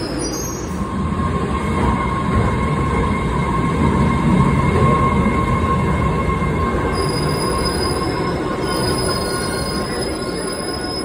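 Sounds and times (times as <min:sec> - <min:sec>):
subway train rumble: 0:00.0 - 0:11.0.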